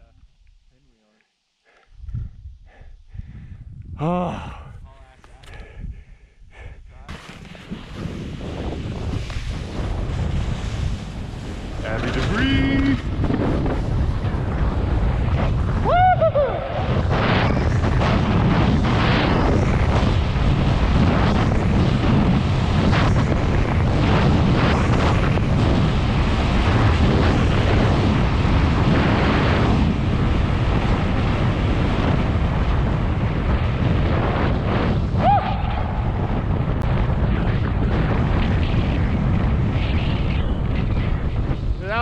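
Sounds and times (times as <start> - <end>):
wind buffeting microphone: 1.9 - 42.0
skis scraping over snow: 7.1 - 15.7.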